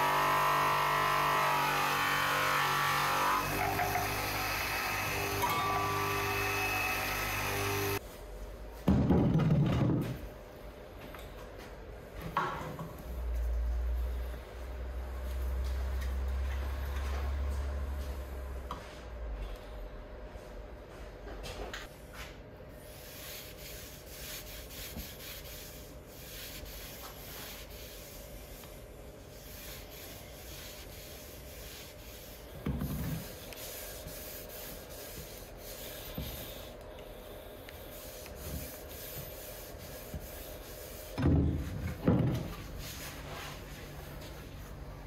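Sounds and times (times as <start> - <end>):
pad rubbing on wood: 29.4 - 36.7, 37.9 - 41.2.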